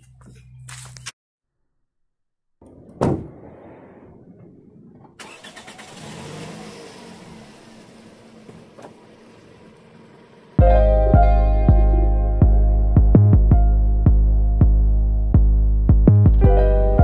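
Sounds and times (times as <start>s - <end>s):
sharp thump: 2.6s - 5.2s
car engine passing: 2.6s - 10.6s.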